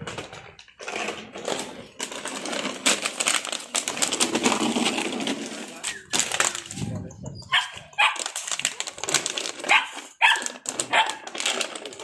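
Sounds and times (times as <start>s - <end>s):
puppies yapping: 7.3s - 8.4s, 9.7s - 11.3s.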